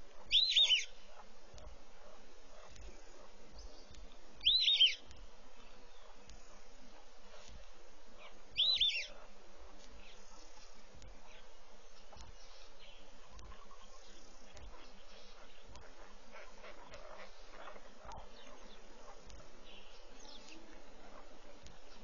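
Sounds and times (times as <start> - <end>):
faint insect buzzing: 0.0 - 22.0
steady background hiss: 0.0 - 22.0
bird chirping call: 0.2 - 1.0, 3.6 - 5.1, 8.2 - 9.2.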